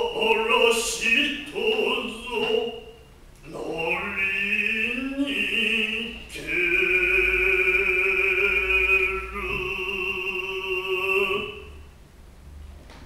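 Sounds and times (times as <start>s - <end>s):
person chanting long held notes: 5.0s - 11.8s.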